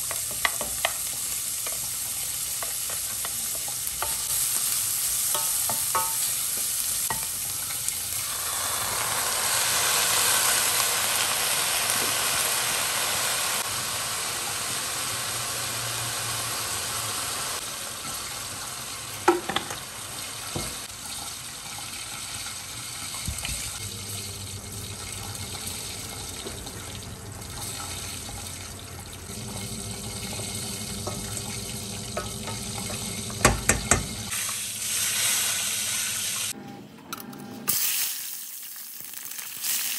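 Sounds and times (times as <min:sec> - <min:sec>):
chicken sizzling in hot oil: 0:00.0 - 0:36.6, 0:37.7 - 0:39.9
utensil knocking on pan: 0:05.3 - 0:06.3, 0:32.2 - 0:34.2.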